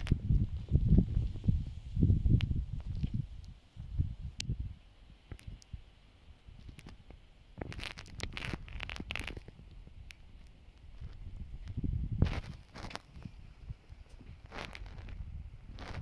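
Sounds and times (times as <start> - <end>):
wind buffeting microphone: 0.0 - 16.0
scratchy crackling rustles: 6.6 - 16.0.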